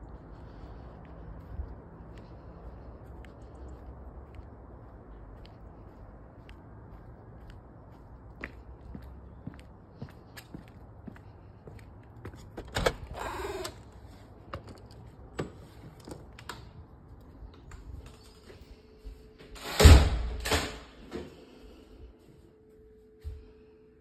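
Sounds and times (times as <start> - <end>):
light footsteps: 0.0 - 12.7, 21.1 - 23.7.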